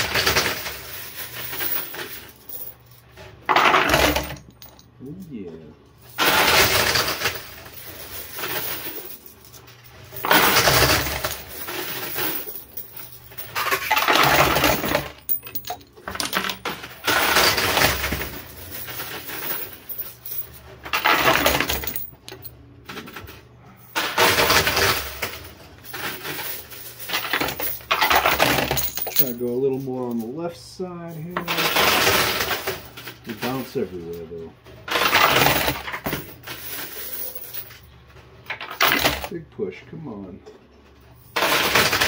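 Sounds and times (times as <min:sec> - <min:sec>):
coins clattering in arcade machine: 0:00.0 - 0:05.4, 0:06.0 - 0:30.4, 0:31.0 - 0:39.4, 0:41.2 - 0:42.0.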